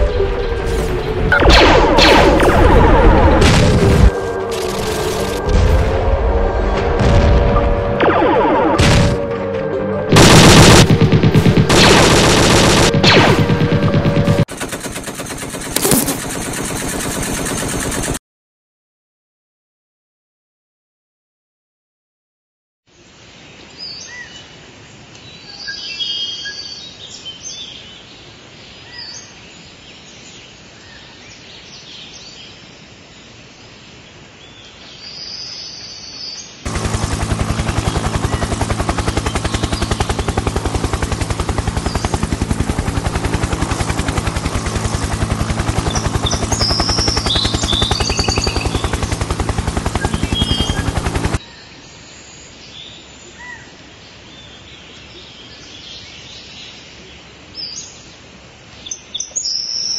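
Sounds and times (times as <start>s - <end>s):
helicopter rotor chopping: 1.3s - 5.5s, 10.1s - 18.2s, 36.7s - 51.4s
birds chirping: 34.5s - 53.7s
low engine hum: 36.7s - 51.4s.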